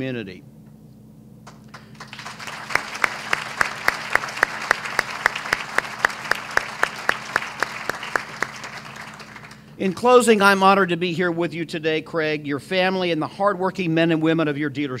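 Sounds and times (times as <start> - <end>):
audience applause: 1.5 - 9.7
loud close hand claps: 1.5 - 9.7.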